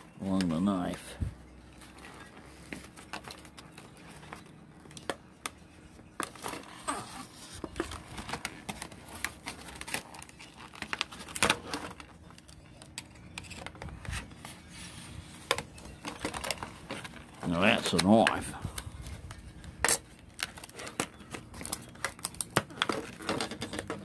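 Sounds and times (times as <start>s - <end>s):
plastic crinkling and crackling: 0.0s - 24.0s
knife slitting plastic packaging: 6.2s - 13.6s.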